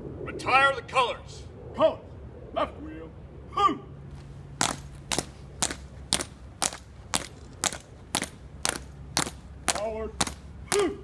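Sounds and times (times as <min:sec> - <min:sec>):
marching cadence beats: 0:04.5 - 0:11.0.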